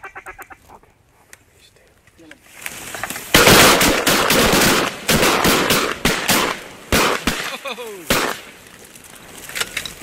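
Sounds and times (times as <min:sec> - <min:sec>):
shotgun blasts: 0:03.3 - 0:08.5.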